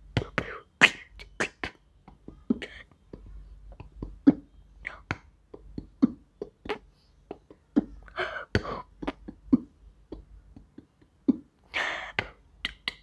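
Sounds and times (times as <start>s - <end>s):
beatboxing kick thumps: 0.1s - 0.6s
beatboxing clicks: 0.2s - 8.0s, 8.6s - 11.5s, 12.2s - 13.0s
hissy snare-like beatbox sounds: 12.2s - 13.0s.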